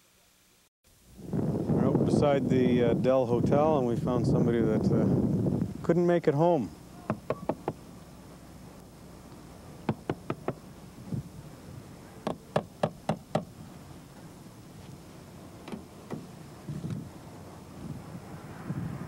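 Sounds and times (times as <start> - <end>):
knocking on car window glass: 7.1 - 7.8, 9.9 - 10.6, 12.2 - 13.5.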